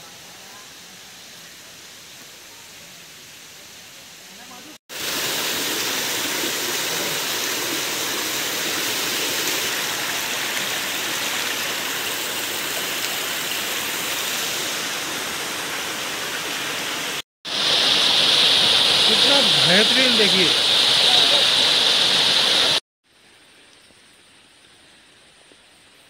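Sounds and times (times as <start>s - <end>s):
water flowing over rocks: 1.4s - 22.8s
water spilling down rock cascade: 4.9s - 15.0s, 17.5s - 22.8s.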